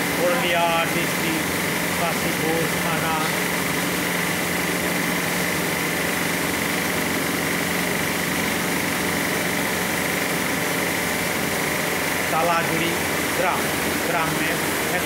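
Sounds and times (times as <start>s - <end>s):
roasting machine humming with whine: 0.0s - 15.0s.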